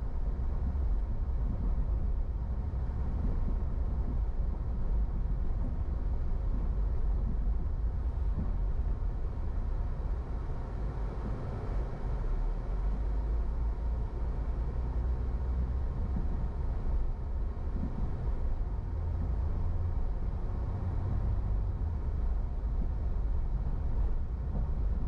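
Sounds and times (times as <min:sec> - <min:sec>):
car engine and tyre rumble: 0:00.0 - 0:25.0.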